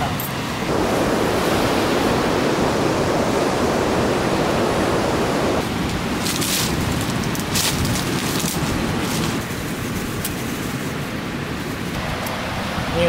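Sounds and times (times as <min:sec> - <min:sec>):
ocean surf breaking on beach: 0:00.0 - 0:13.0
dry crackles of rustling: 0:05.8 - 0:12.0.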